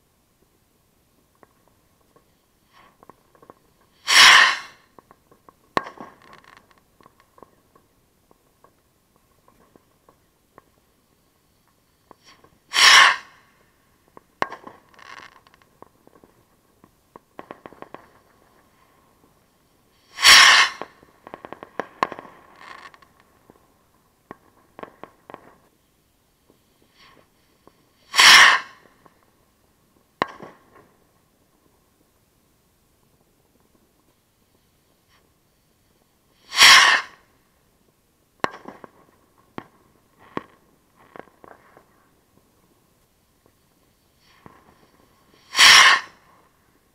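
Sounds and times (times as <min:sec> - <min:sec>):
firework crackles: 0:00.0 - 0:46.9
firework launch whoosh: 0:03.9 - 0:04.9, 0:12.2 - 0:13.6, 0:20.0 - 0:22.9, 0:28.0 - 0:29.0, 0:36.4 - 0:37.3, 0:44.2 - 0:46.3
firework bang: 0:04.0 - 0:04.9, 0:12.2 - 0:13.5, 0:20.2 - 0:22.6, 0:28.1 - 0:29.0, 0:36.5 - 0:37.2, 0:45.5 - 0:46.3.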